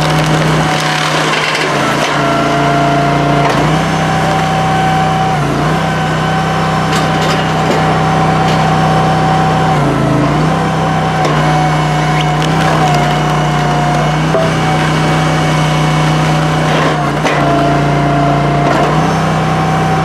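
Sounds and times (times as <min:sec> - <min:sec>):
wood splitting cracks: 0:00.0 - 0:02.2, 0:11.2 - 0:17.5
log splitter engine running: 0:00.0 - 0:20.0.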